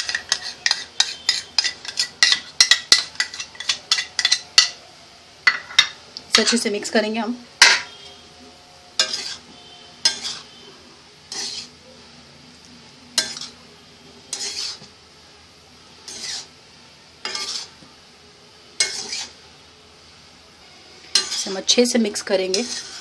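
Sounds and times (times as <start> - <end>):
metal spatula scraping a wok: 0.0 - 4.8, 8.9 - 11.8, 13.1 - 15.0, 16.0 - 16.6, 17.2 - 17.8, 18.8 - 19.4, 21.0 - 23.0.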